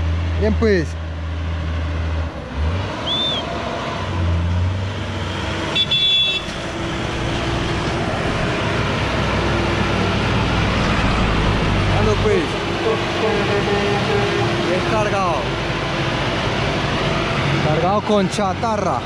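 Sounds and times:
truck engines passing: 0:00.0 - 0:19.0
truck horn toot: 0:03.0 - 0:03.5, 0:05.6 - 0:06.8, 0:13.8 - 0:14.7.

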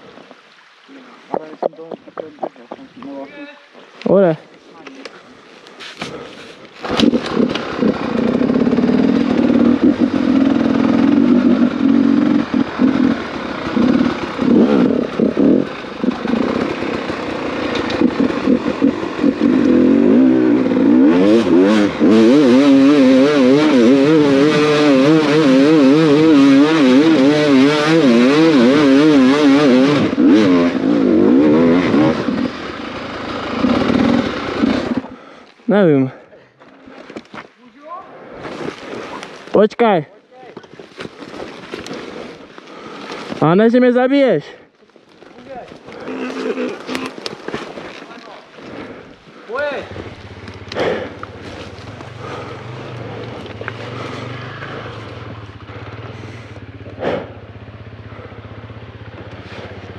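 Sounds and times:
dirt bike engine revving: 0:06.8 - 0:35.3, 0:45.4 - 0:59.9.

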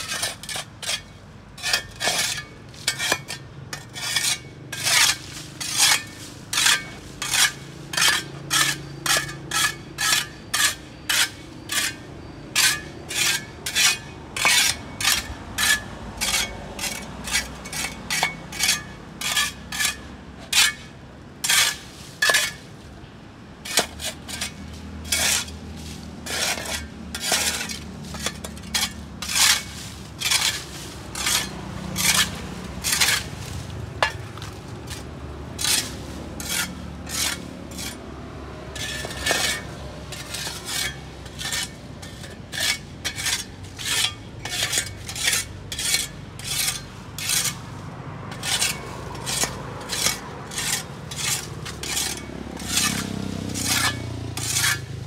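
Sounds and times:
hand tool scraping sidewalk: 0:00.0 - 0:55.0.

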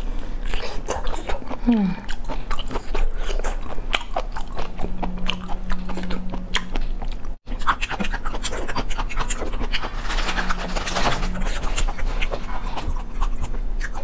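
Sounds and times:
wet mouth eating sounds: 0:00.0 - 0:14.0.

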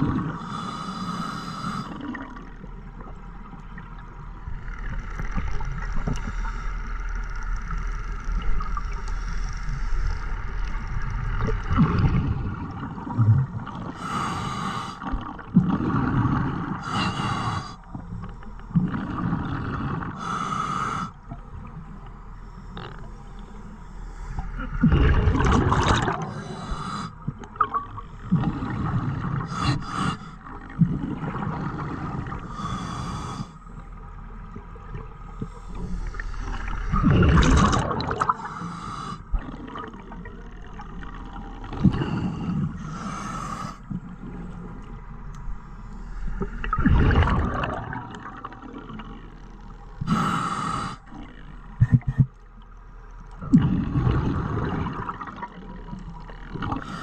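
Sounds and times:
diver inhaling through regulator: 0:00.3 - 0:02.1, 0:13.9 - 0:15.1, 0:16.8 - 0:17.8, 0:20.0 - 0:21.2, 0:26.2 - 0:27.2, 0:28.0 - 0:30.4, 0:32.4 - 0:33.8, 0:38.3 - 0:39.4, 0:41.8 - 0:43.9, 0:50.0 - 0:51.5, 0:56.8 - 0:57.0
exhaled bubbles rushing: 0:11.4 - 0:13.9, 0:24.6 - 0:26.4, 0:36.1 - 0:38.5, 0:46.4 - 0:49.2, 0:53.4 - 0:56.9.

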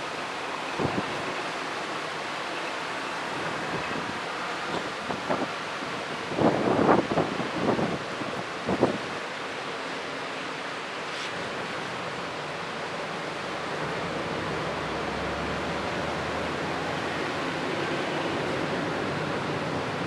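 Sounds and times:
storm wind rushing hiss: 0:03.2 - 0:09.2
wind gust buffeting microphone: 0:03.4 - 0:09.1.

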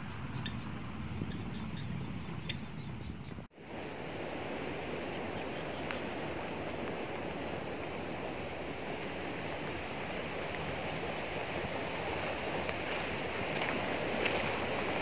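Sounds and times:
running water rushing: 0:03.6 - 0:15.0.

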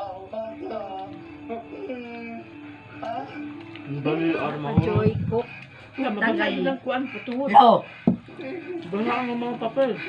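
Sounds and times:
background music with sung melody: 0:00.0 - 0:06.5.

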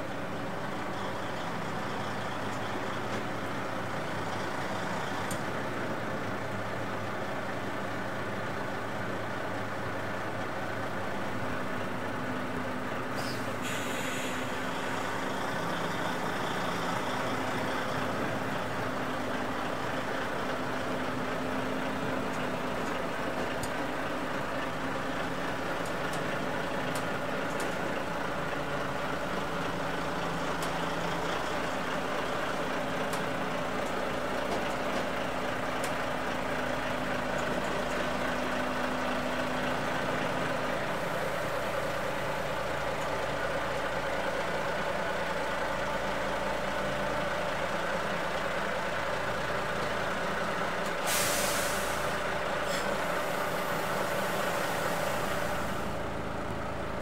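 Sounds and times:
diesel engine running at low speed: 0:00.0 - 0:57.0
air brake hiss: 0:13.1 - 0:15.0, 0:51.0 - 0:56.0.

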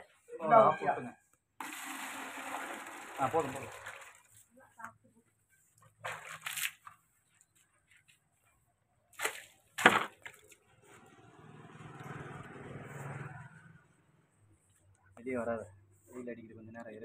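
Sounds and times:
water splashing onto concrete: 0:01.6 - 0:04.4, 0:06.0 - 0:06.9, 0:09.2 - 0:10.6.

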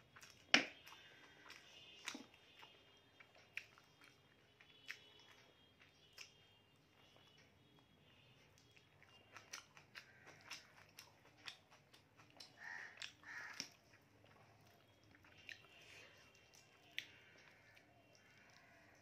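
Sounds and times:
person chewing food: 0:00.0 - 0:19.0
wet mouth clicks and smacks: 0:00.2 - 0:02.7, 0:08.6 - 0:14.4.

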